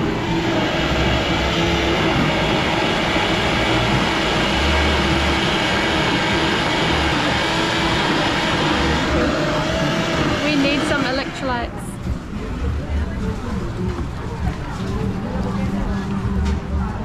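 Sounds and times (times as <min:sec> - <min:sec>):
blender blending ice: 0:00.0 - 0:11.8.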